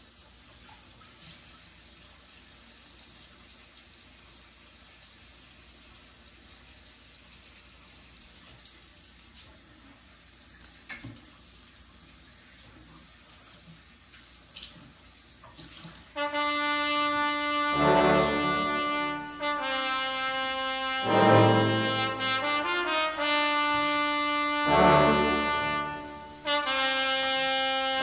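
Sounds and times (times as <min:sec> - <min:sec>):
background music with held notes: 0:16.2 - 0:28.0.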